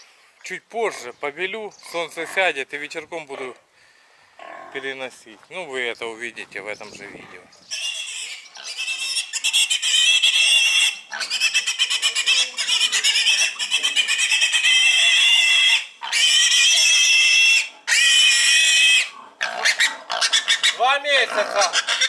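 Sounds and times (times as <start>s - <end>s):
piglet squealing: 7.7s - 22.0s.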